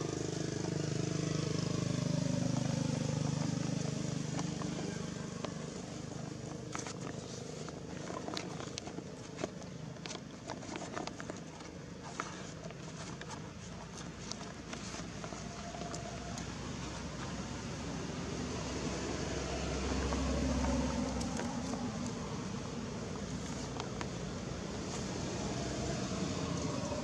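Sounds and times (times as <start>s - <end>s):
motor engine humming: 0.0s - 27.0s
dry leaves crackling and rustling: 0.1s - 27.0s.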